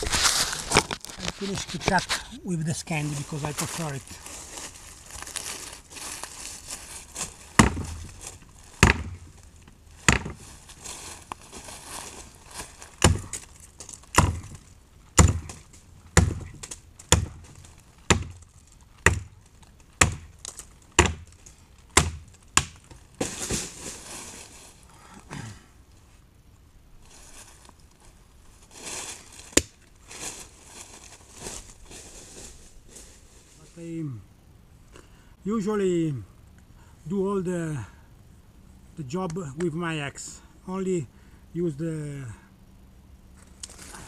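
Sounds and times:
axe chopping log: 7.6s - 8.1s, 8.8s - 9.3s, 10.0s - 10.4s, 13.0s - 13.4s, 14.1s - 14.6s, 15.2s - 18.4s, 19.0s - 19.4s, 20.0s - 20.3s, 21.0s - 21.3s, 21.9s - 23.4s.

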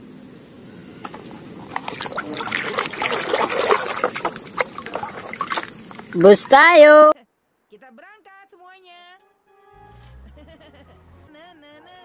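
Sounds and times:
water splashing in a plastic tub: 1.1s - 7.0s.

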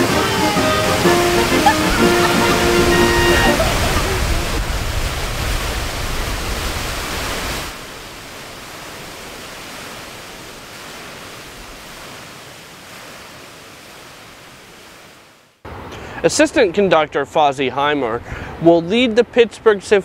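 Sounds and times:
fountain water rushing and splashing: 0.0s - 15.4s.

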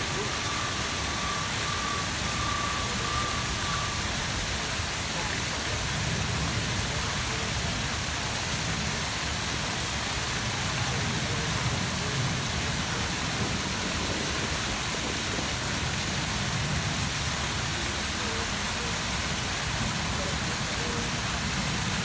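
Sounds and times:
fountain water splashing: 0.0s - 22.0s.

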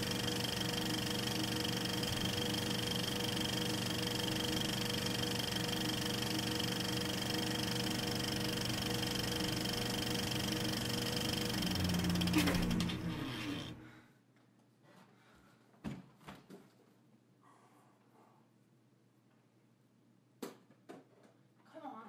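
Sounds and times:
film projector whirring: 0.0s - 13.8s.

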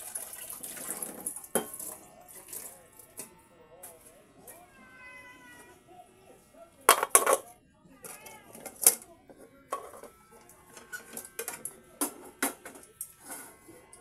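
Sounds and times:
metal cookware clanking: 6.9s - 7.5s.

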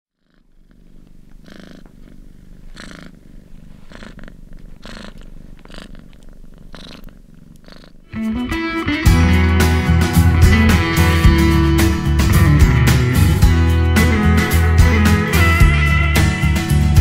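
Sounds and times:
cat purring: 0.1s - 13.4s.

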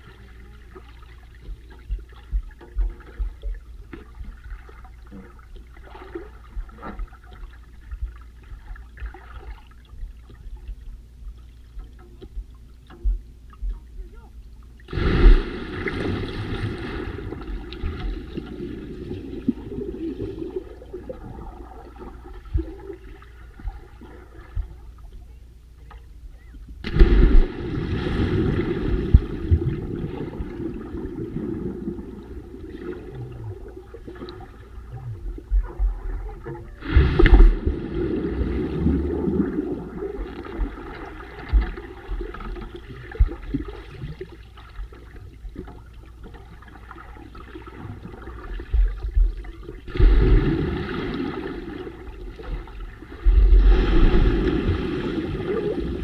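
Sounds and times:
underwater plunges: 0.0s - 25.3s, 25.9s - 56.0s
underwater bubbles rushing: 14.8s - 25.1s, 26.7s - 56.0s.

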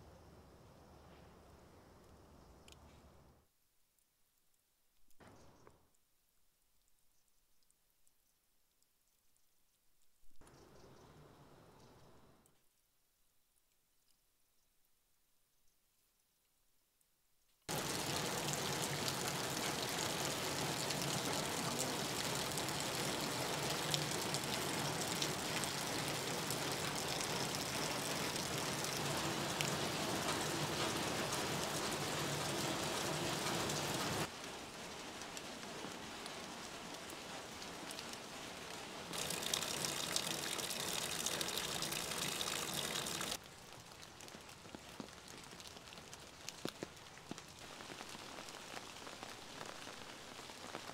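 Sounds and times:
steady rain falling: 17.7s - 50.9s.

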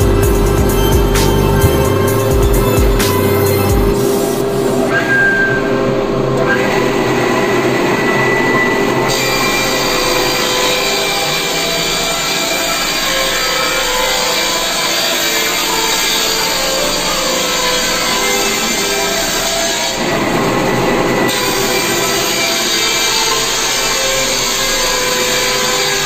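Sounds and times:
instrumental background music: 0.0s - 19.2s
machine grinding and rubbing: 0.0s - 26.0s.

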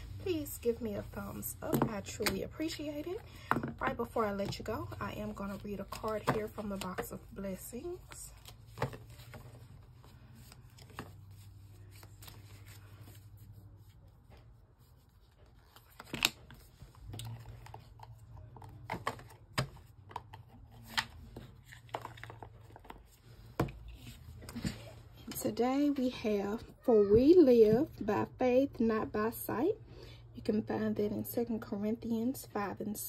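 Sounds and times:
cards rustling: 0.0s - 25.0s.

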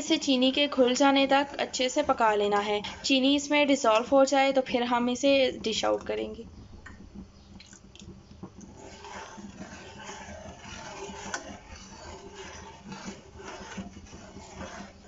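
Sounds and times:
spoon scraping steel pan: 0.0s - 4.7s, 8.6s - 15.0s.

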